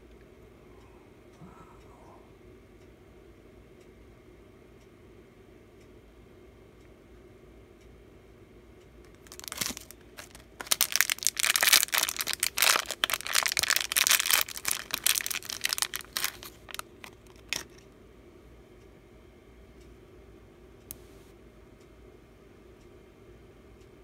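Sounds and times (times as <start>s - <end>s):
plastic wrapper crinkling: 9.1s - 17.8s.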